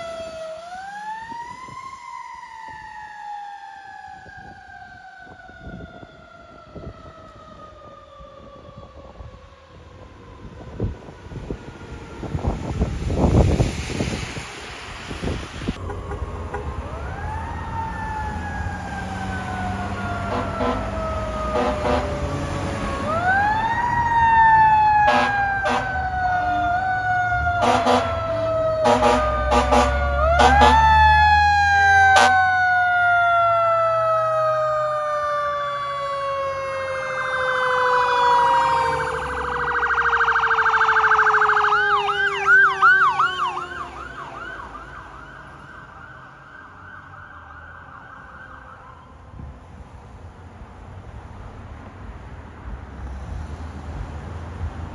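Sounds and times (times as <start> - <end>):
fire truck siren wailing: 0.0 - 52.3
air horn blasts: 15.8 - 16.8, 20.3 - 22.2, 25.1 - 26.8, 27.6 - 30.9, 32.2 - 32.4.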